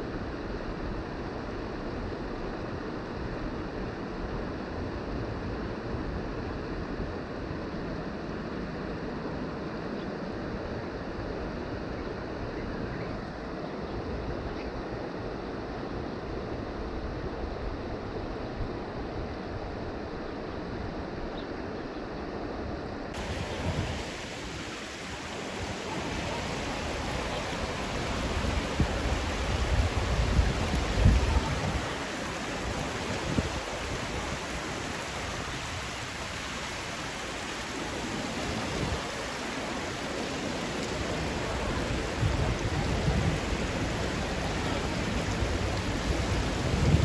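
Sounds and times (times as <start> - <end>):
low water rumbles: 0.0 - 47.0
fast-flowing creek rushing: 23.2 - 47.0.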